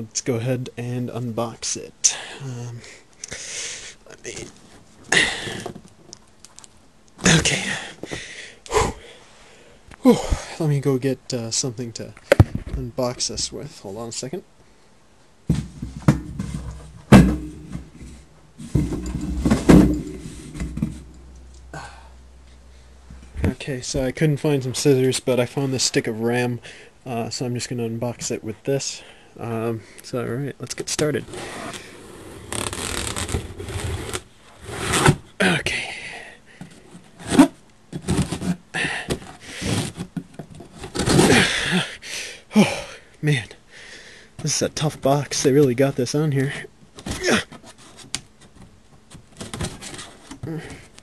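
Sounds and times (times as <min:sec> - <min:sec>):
knocks and thumps: 0:12.3 - 0:12.8, 0:15.5 - 0:21.2
ram stick scraping cardboard tape: 0:31.3 - 0:35.2.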